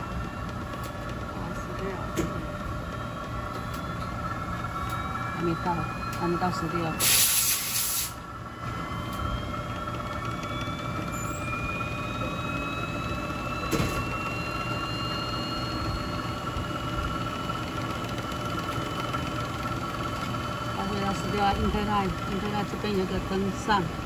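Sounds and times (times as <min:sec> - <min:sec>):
motor hum with rising whine: 0:00.0 - 0:24.0.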